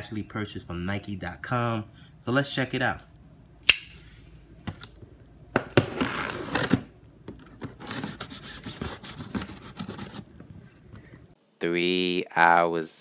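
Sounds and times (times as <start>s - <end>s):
knife cutting packing tape: 5.6s - 6.9s, 7.8s - 10.3s
cardboard scraping and rustling: 5.8s - 10.9s.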